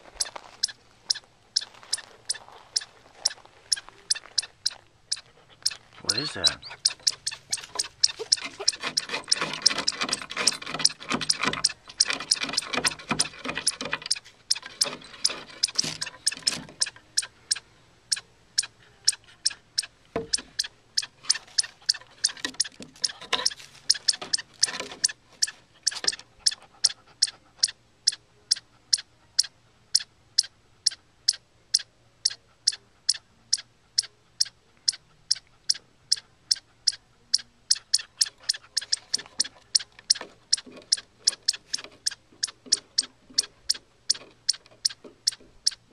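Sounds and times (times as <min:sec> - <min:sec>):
chipmunk alarm chips: 0:00.1 - 0:45.9
dog scratching at boards: 0:06.7 - 0:16.9.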